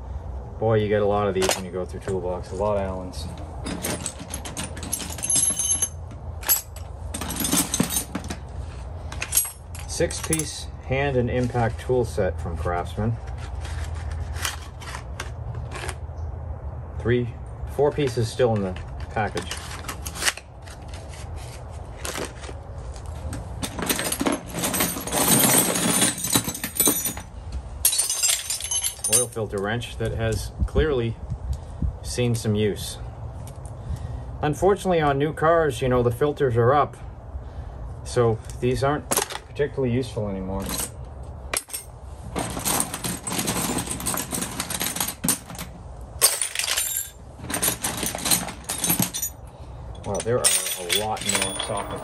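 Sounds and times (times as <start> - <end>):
wrenches and sockets clinking: 1.4 - 10.7, 18.0 - 30.4, 40.6 - 52.0
metal hand tools clattering: 3.6 - 8.4, 9.1 - 10.6, 23.6 - 29.5, 41.6 - 49.4, 50.0 - 52.0.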